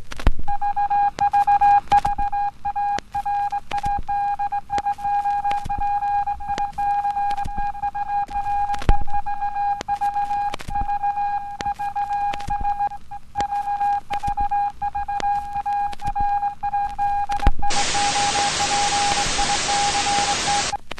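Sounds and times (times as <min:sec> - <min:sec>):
crackling clicks: 0:00.0 - 0:20.9
television test tone: 0:04.8 - 0:20.8
tv static hiss: 0:17.4 - 0:20.9.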